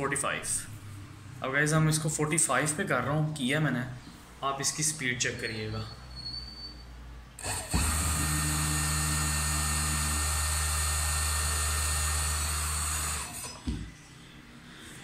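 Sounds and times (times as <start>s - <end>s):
servo motor whining: 7.4s - 13.6s.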